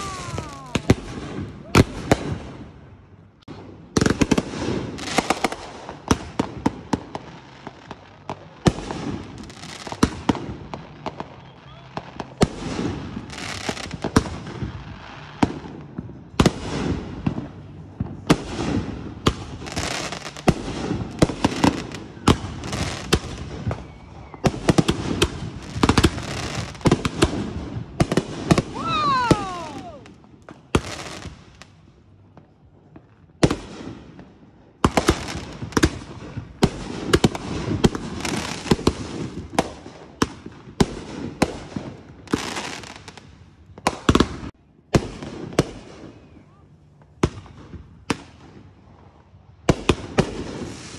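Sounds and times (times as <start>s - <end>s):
falling firework whistle: 0.0s - 1.9s, 11.0s - 12.1s, 21.6s - 26.9s, 28.5s - 30.2s
firework bangs with crackling: 0.0s - 46.4s, 47.0s - 50.9s.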